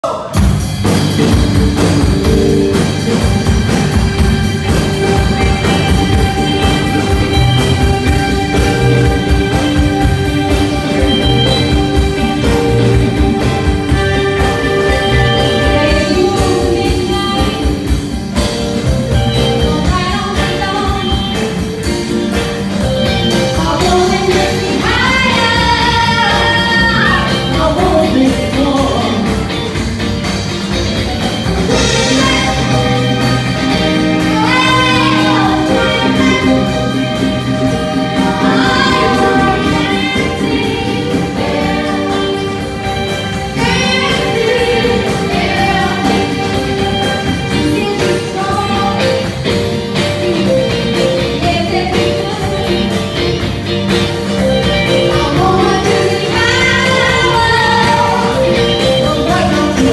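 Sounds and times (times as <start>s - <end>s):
live band playing disco-rock: 0.0s - 59.9s
voices singing: 31.7s - 49.1s, 55.2s - 59.9s.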